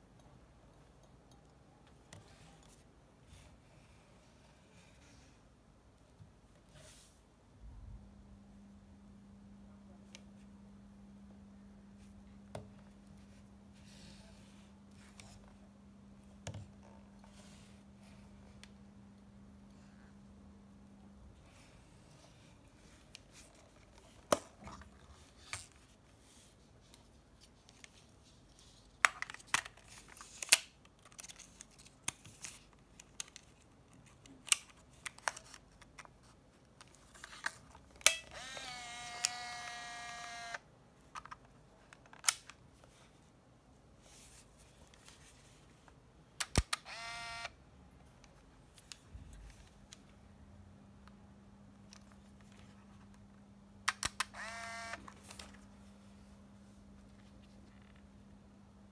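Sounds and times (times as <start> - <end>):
camera motor whirring: 38.2 - 40.6, 46.8 - 47.5, 54.3 - 55.0.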